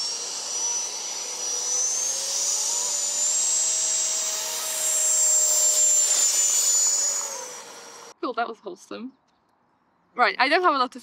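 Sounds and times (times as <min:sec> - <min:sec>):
electric ducted fan whining: 0:00.0 - 0:08.2.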